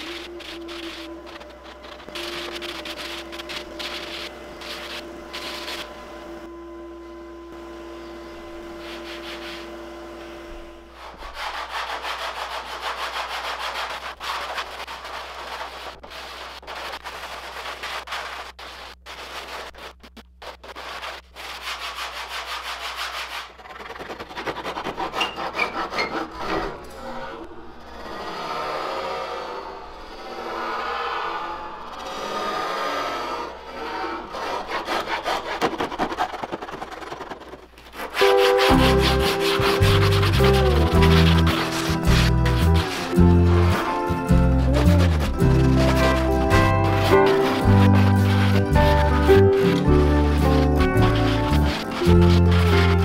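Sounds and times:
hand sanding wood: 0:00.0 - 0:05.9, 0:08.7 - 0:09.8, 0:10.9 - 0:26.6, 0:34.3 - 0:53.0.

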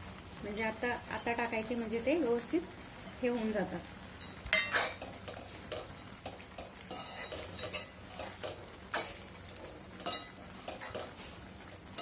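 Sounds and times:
metal spoon stirring in a pan: 0:03.2 - 0:12.0
spoon clinking against pan: 0:04.2 - 0:09.2, 0:10.0 - 0:11.1.

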